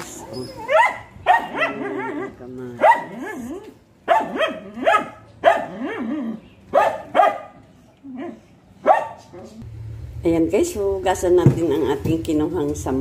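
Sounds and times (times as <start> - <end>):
dog barking: 0.6 - 9.6.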